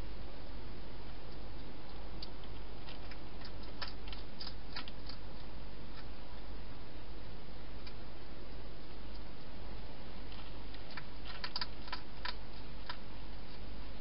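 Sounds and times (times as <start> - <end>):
hedgehog chewing clicks: 1.3 - 6.1, 10.3 - 13.6.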